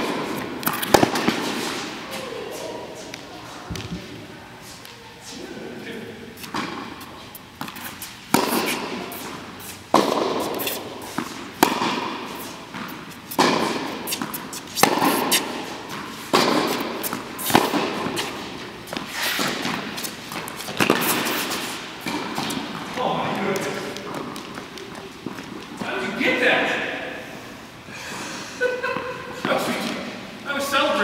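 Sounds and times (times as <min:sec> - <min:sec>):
tennis ball hitting racquet strings: 0:00.0 - 0:04.0, 0:06.4 - 0:26.2
tennis ball bouncing: 0:00.0 - 0:04.1, 0:06.4 - 0:25.9.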